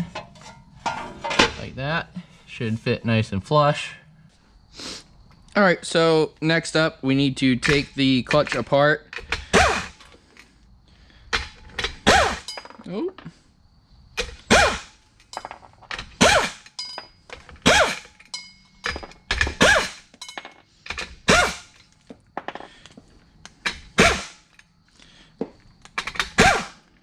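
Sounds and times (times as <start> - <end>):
pneumatic impact wrench bursts: 9.2 - 10.3, 11.4 - 12.6, 14.2 - 15.0, 16.0 - 16.8, 17.5 - 18.2, 19.4 - 20.1, 20.8 - 21.8, 23.8 - 24.6, 26.1 - 26.9.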